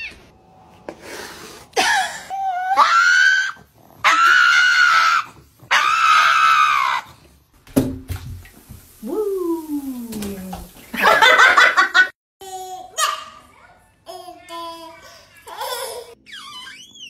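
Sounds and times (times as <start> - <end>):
dog screaming: 2.3 - 7.2.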